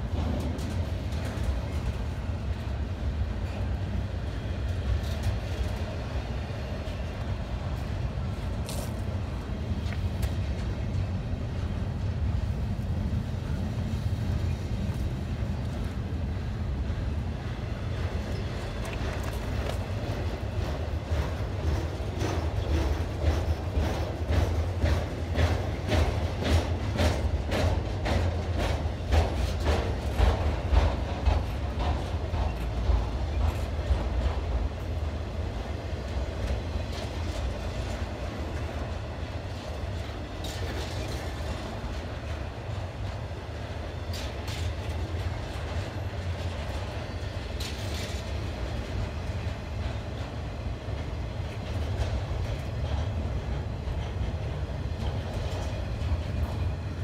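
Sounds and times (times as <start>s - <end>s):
steel wheels rumbling on rail: 0.0s - 57.0s
wheels clicking over rail joints: 17.9s - 57.0s.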